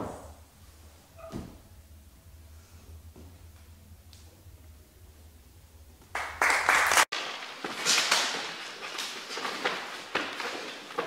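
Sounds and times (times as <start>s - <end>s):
audience applause: 6.1s - 7.1s.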